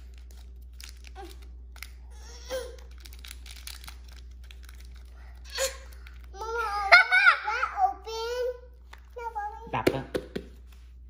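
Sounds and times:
plastic wrapper crinkling: 0.0 - 6.6.

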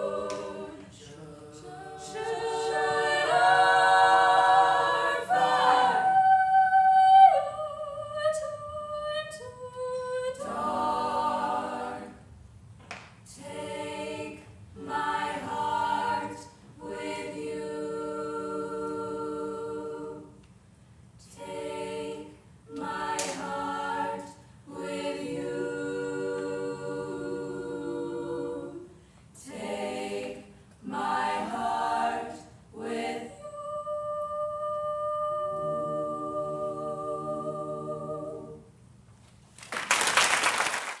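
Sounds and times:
female a cappella group singing: 0.0 - 12.4, 13.2 - 20.4, 21.2 - 38.9
audience applause: 39.6 - 41.0.

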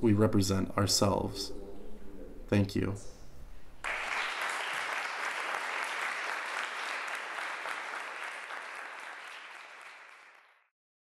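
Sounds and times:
audience applauding: 3.8 - 10.7.

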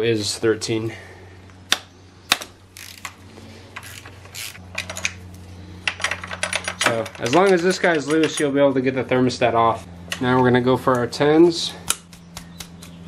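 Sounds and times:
ratchet wrench clicking: 2.8 - 3.2, 3.8 - 5.1.

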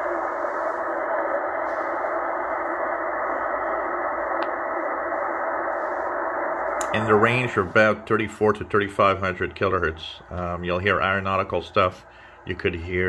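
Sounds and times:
muffled radio static hiss: 0.0 - 13.0
faint radio broadcast: 3.8 - 13.0.

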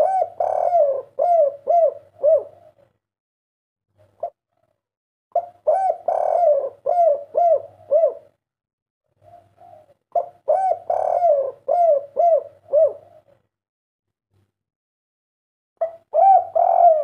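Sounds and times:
dove cooing: 0.0 - 2.9, 4.0 - 4.8, 5.4 - 8.4, 9.1 - 13.4, 15.8 - 17.0.

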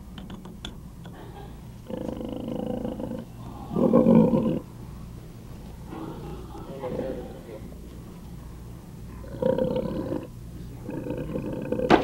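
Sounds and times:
pig moaning: 1.8 - 4.7, 5.8 - 7.7, 9.1 - 12.0.

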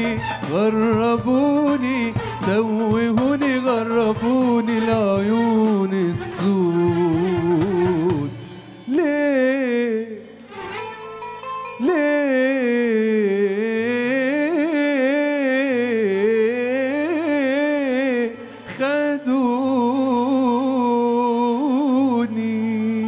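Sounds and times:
band accompaniment: 0.0 - 12.2
man singing long wordless notes: 0.0 - 23.0.

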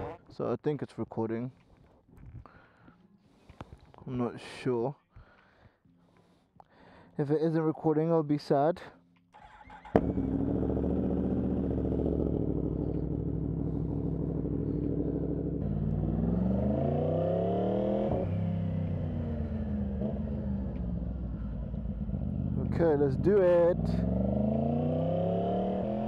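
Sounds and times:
motorcycle engine idling and revving: 9.4 - 26.0.

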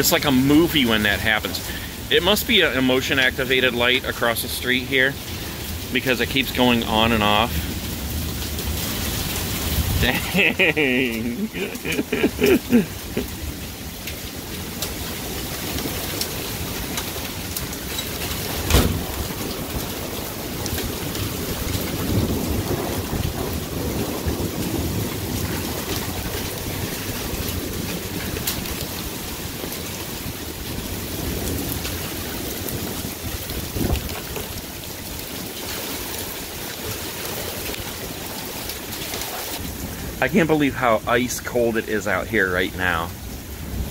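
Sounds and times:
heavy rain pouring: 0.0 - 43.9
low rumble of thunder: 5.1 - 10.8, 11.4 - 40.2, 42.9 - 43.9
sharp thunder crack: 18.4 - 28.4.

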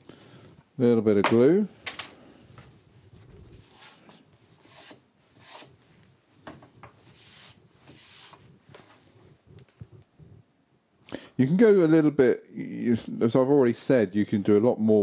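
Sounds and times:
wooden boards sliding and rubbing: 6.5 - 9.2.

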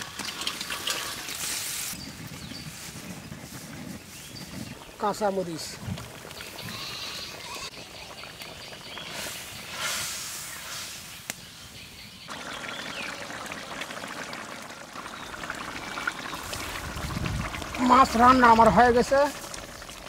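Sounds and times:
curry bubbling in a wok: 5.6 - 10.5, 12.2 - 20.0.

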